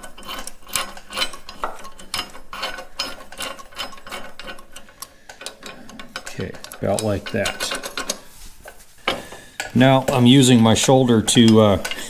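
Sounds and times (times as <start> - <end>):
metallic clicks and scrapes: 0.0 - 12.0.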